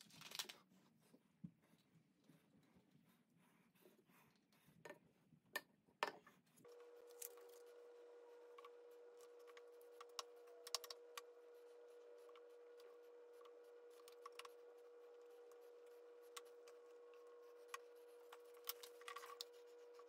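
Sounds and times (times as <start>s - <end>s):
steady low hum: 6.5s - 20.0s.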